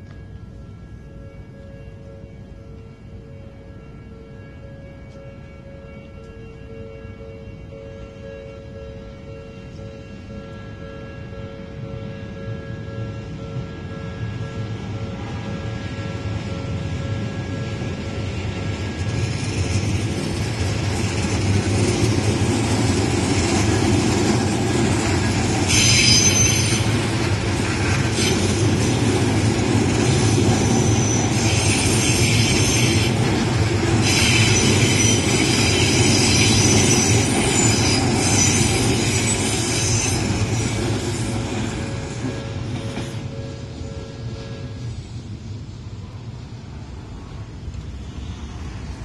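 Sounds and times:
crossing bell ringing: 0.0 - 45.2
train running noise: 0.0 - 49.0
train wheels squealing: 12.6 - 46.2, 47.9 - 49.0.

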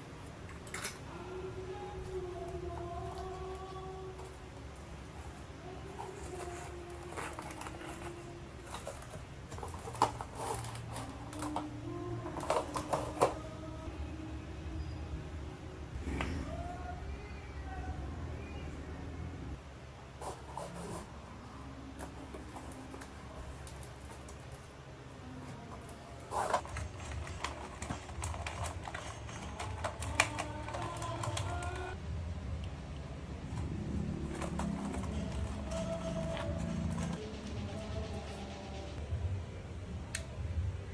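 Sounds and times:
paper rustling: 3.1 - 11.7, 25.5 - 32.0, 34.2 - 37.2.

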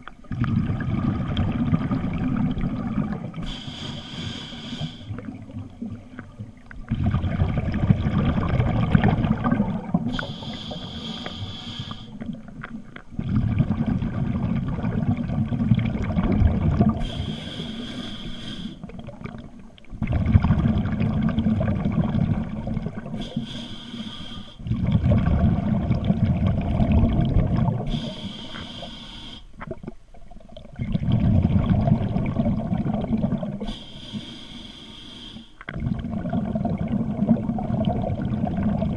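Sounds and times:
exhaled bubbles: 0.0 - 34.3, 35.6 - 38.9
regulator hissing inhalation: 3.4 - 5.2, 10.1 - 12.2, 17.0 - 18.8, 23.2 - 24.6, 27.9 - 29.5, 33.6 - 35.6.

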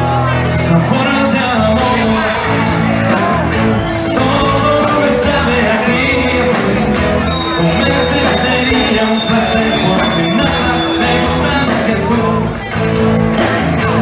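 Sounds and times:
bass: 0.0 - 14.0
drum kit: 0.0 - 14.0
electric guitar: 0.0 - 14.0
person singing: 0.0 - 14.0.

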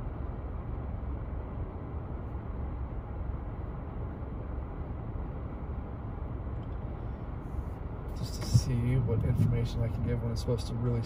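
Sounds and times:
car engine idling: 4.7 - 11.0.

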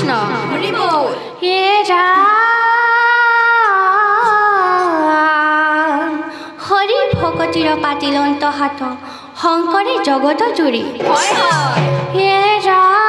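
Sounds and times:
girls singing devotional chant: 1.4 - 6.2.

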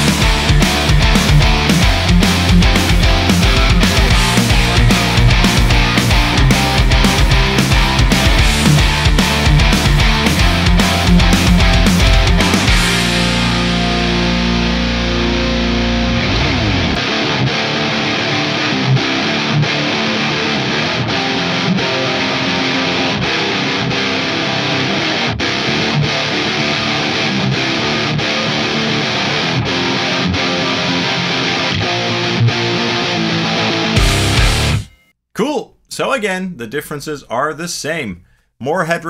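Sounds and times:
programmed drums: 0.0 - 14.4, 34.0 - 35.5
distorted electric guitar riffing: 0.0 - 35.0.

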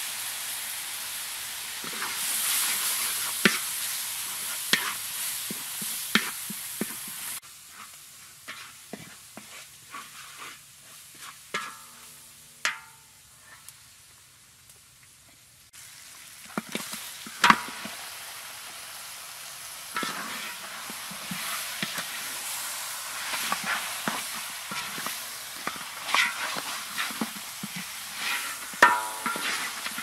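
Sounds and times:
meat sizzling in a wok: 0.0 - 30.0
metal spatula scraping a wok: 1.8 - 12.8, 19.9 - 30.0.

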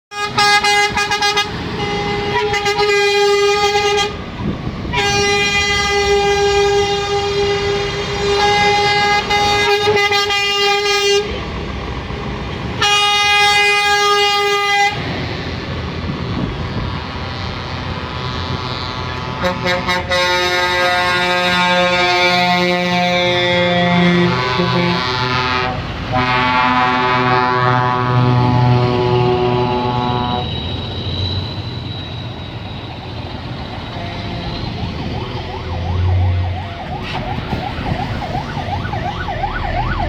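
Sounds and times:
truck horn blasts: 0.1 - 11.5, 12.8 - 15.1, 16.7 - 32.2, 33.7 - 35.1
diesel engines and tyres rumbling: 0.1 - 40.0.

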